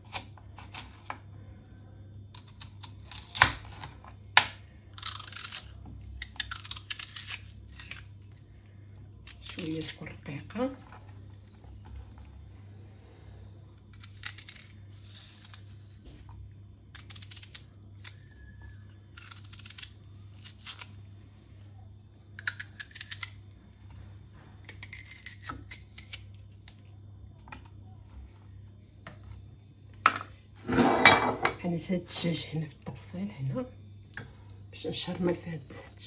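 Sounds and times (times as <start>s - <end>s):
knife slicing onion crunch: 0.0s - 1.2s, 2.3s - 4.2s, 4.9s - 8.1s, 13.9s - 16.0s, 19.1s - 20.9s, 24.7s - 26.2s
low steady hum: 0.0s - 36.0s.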